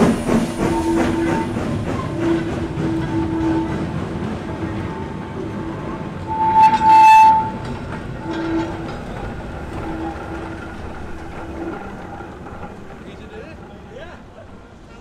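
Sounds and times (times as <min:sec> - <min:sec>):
train rumbling and clanking over rails: 0:00.0 - 0:15.0
steam locomotive whistle: 0:00.6 - 0:03.9, 0:04.8 - 0:07.6.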